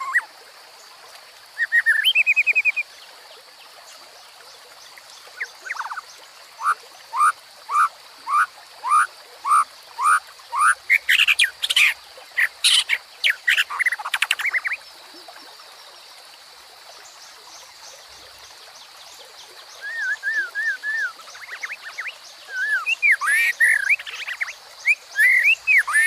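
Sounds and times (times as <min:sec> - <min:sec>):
babbling stream: 0:00.0 - 0:26.0
bird singing whistled notes: 0:01.6 - 0:02.8, 0:19.8 - 0:26.0.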